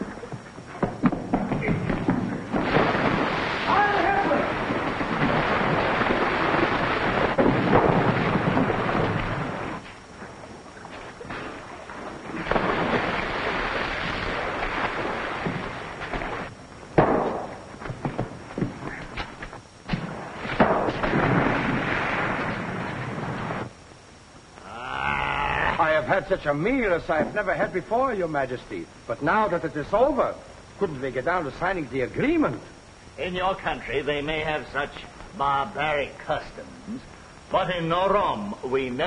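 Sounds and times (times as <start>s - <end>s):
sharp knocks and cracks: 0.8s - 3.3s, 15.4s - 21.7s
rushing sea water: 2.7s - 9.8s, 10.7s - 16.5s.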